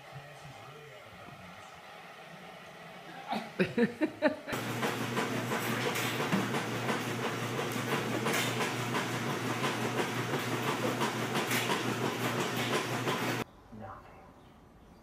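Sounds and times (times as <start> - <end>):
treadmill motor hum: 0.0 - 13.4
treadmill belt clatter: 4.6 - 13.4.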